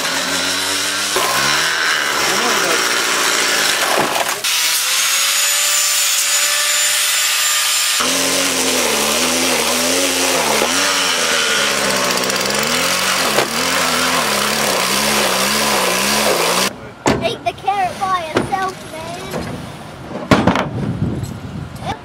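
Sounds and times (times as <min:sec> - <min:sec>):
string trimmer engine revving: 0:00.0 - 0:04.5, 0:07.6 - 0:16.7
angle grinder cutting metal: 0:00.0 - 0:16.7.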